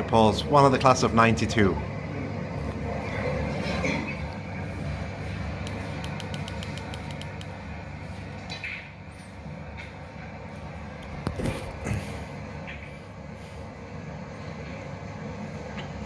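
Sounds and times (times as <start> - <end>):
low room hum: 0.0 - 16.0
sharp clicks: 5.6 - 7.6.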